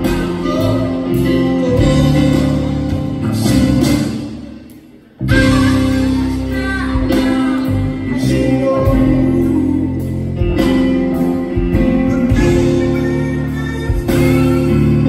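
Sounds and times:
man singing: 0:00.0 - 0:04.3, 0:05.2 - 0:15.0
electric bass: 0:00.0 - 0:15.0
keyboard chords: 0:00.0 - 0:15.0.

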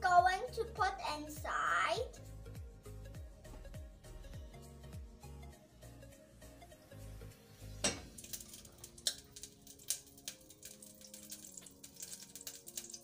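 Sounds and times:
butter crackling in a pan: 0:08.1 - 0:13.0.

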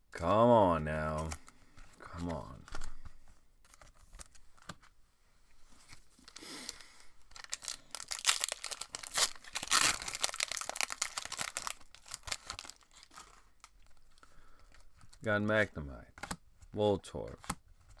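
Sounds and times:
foil wrapper tearing and crinkling: 0:07.3 - 0:14.0.

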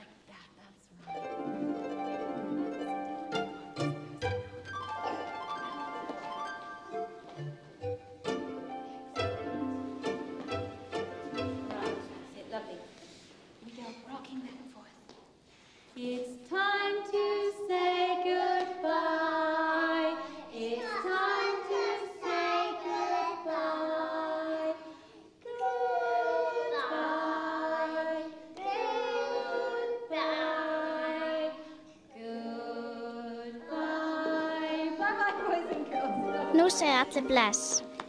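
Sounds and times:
children and woman singing: 0:16.0 - 0:37.8.

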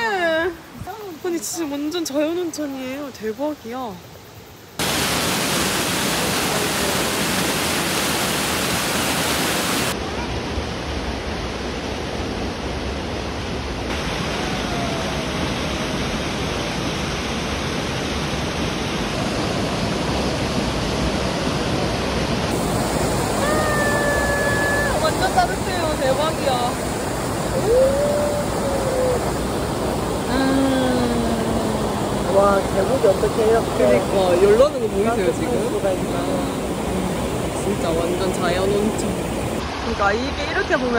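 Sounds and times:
waterfall pouring into pool: 0:04.8 - 0:10.0, 0:13.9 - 0:15.4, 0:22.5 - 0:29.6.

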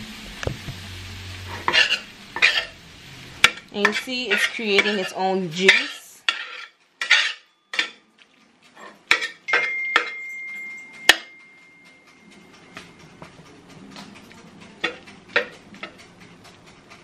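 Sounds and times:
metal spatula scraping frying pan: 0:01.4 - 0:08.0, 0:08.7 - 0:10.1, 0:14.8 - 0:16.0
high metallic ring: 0:07.0 - 0:08.0, 0:09.1 - 0:13.3.

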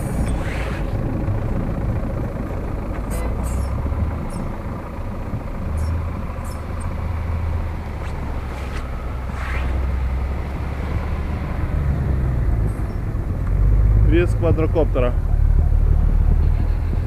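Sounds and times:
truck engine rumbling: 0:00.0 - 0:17.0.

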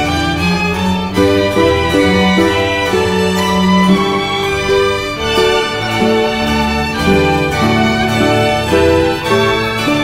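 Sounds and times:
instrumental music: 0:00.0 - 0:10.0.

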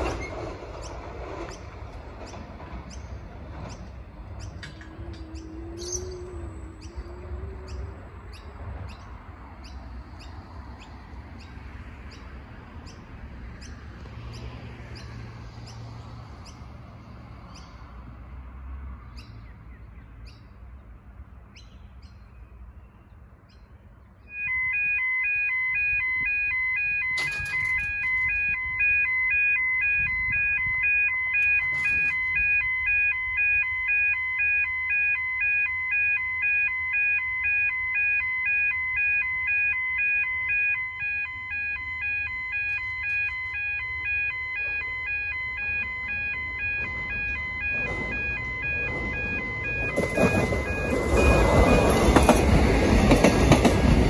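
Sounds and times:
distant electric train rumble: 0:00.0 - 0:54.0
birds chirping: 0:00.7 - 0:16.7
pulsing electronic warning alarm: 0:04.5 - 0:09.0, 0:24.2 - 0:54.0.

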